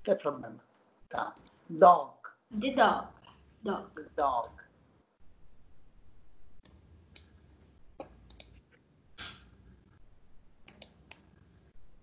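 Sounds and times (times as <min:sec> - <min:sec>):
computer mouse clicks: 0:01.3 - 0:01.6, 0:06.6 - 0:07.4, 0:08.0 - 0:08.6, 0:10.6 - 0:11.6.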